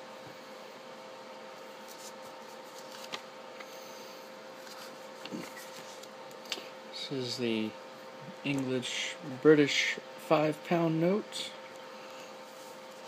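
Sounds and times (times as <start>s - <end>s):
steady background hum: 0.0s - 13.0s
paper banknotes rustling: 1.7s - 3.3s.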